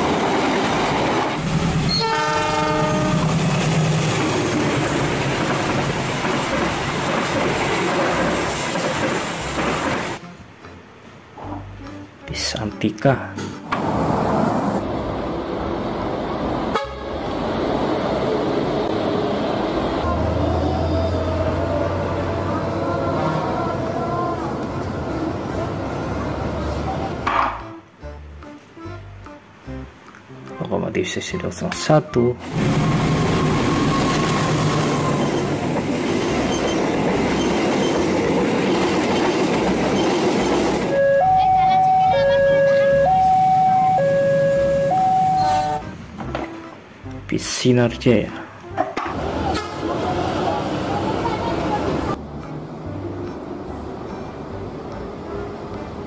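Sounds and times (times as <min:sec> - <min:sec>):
train wheels rushing on rails: 0:00.0 - 0:10.2, 0:32.4 - 0:41.0
road traffic noise: 0:00.0 - 0:56.0
bus horns tooting: 0:01.9 - 0:03.3, 0:16.7 - 0:17.3, 0:40.7 - 0:46.8, 0:49.2 - 0:52.0.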